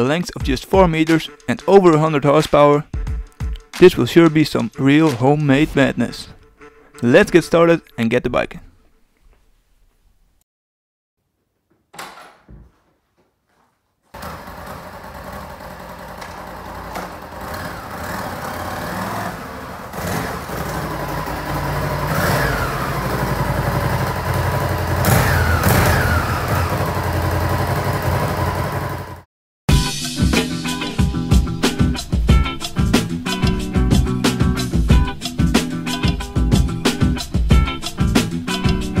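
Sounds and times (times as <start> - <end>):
motorcycle engine revving: 14.2 - 29.2.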